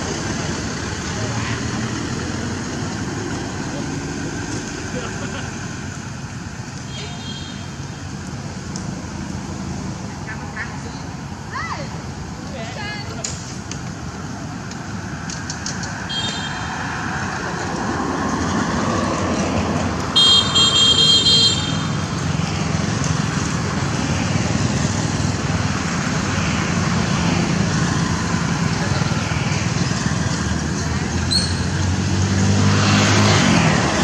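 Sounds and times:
road traffic: 0:00.0 - 0:34.0
vehicle horn tooting: 0:16.1 - 0:16.7, 0:20.2 - 0:21.9.

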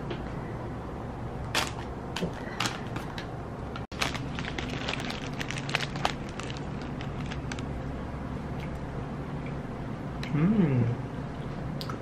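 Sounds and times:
low room hum: 0:00.0 - 0:12.0
paper and plastic wrapping rustling: 0:01.6 - 0:07.7.

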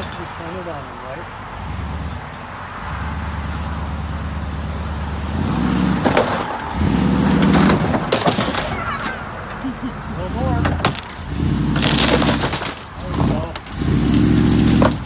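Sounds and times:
pickup engine revving: 0:00.2 - 0:15.0
car body crunching: 0:05.3 - 0:15.0.

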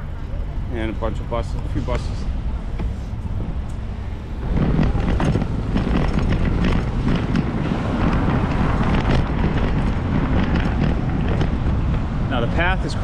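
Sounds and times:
low rumble of street traffic: 0:00.0 - 0:13.0
wind buffeting microphone: 0:02.3 - 0:13.0.

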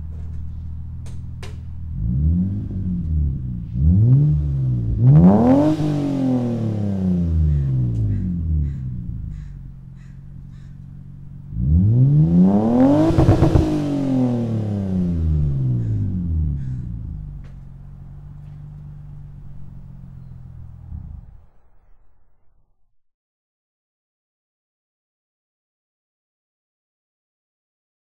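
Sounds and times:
car engine revving: 0:00.0 - 0:22.0
car engine idling: 0:00.0 - 0:22.2.

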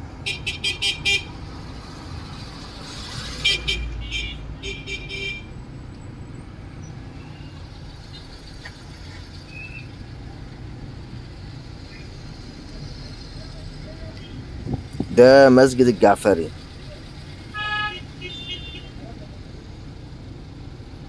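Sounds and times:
low traffic rumble: 0:00.0 - 0:21.0
car horns honking: 0:00.2 - 0:01.4, 0:03.1 - 0:05.6, 0:14.0 - 0:19.4.

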